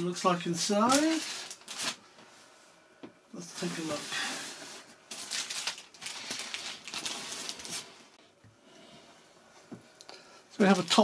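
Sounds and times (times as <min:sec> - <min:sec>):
plastic packaging crinkling: 0:00.3 - 0:02.0, 0:03.6 - 0:08.2, 0:10.7 - 0:11.0.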